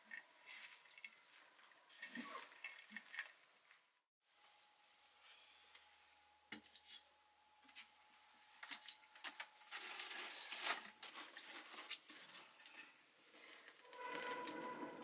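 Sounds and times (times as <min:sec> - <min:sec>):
firewood scraping and crackling: 0:09.6 - 0:15.0.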